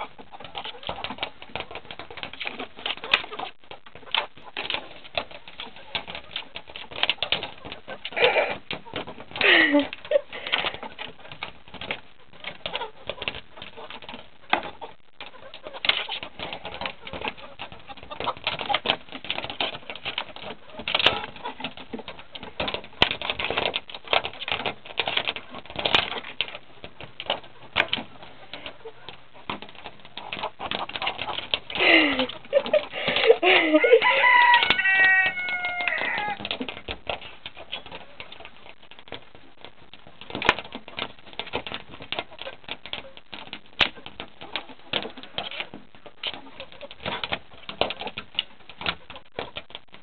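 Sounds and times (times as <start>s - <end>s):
beaks pecking on glass: 0.0s - 50.0s
chicken squawk: 31.9s - 36.5s
hen calls: 33.0s - 36.4s.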